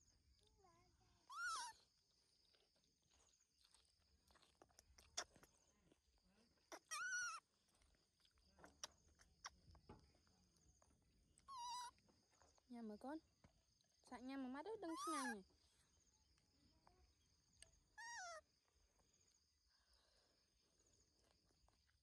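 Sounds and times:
baby monkey squeaking: 1.3s - 1.8s, 6.7s - 7.5s, 11.4s - 12.0s, 14.8s - 15.4s, 18.0s - 18.4s.

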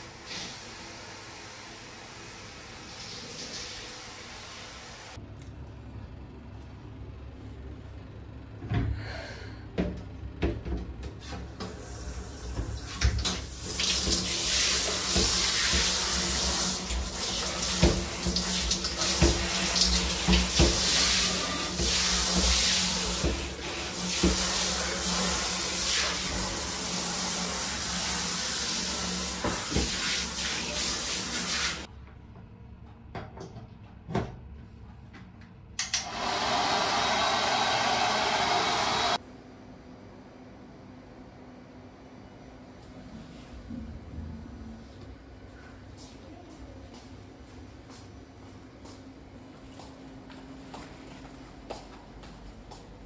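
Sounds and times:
shower spray hissing: 13.6s - 31.9s.

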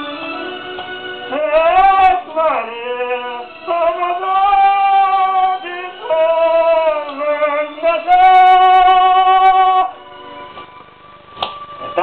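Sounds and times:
man singing high notes: 1.3s - 10.1s.

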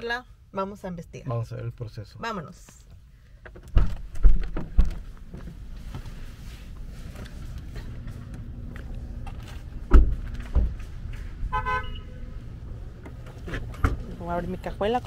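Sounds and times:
car door thudding shut: 9.8s - 10.8s.

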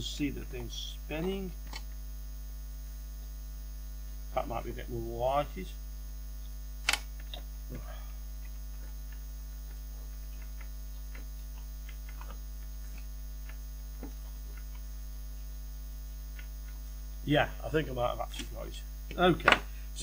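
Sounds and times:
electrical mains hum: 0.0s - 20.0s
sharp click: 6.8s - 7.5s.

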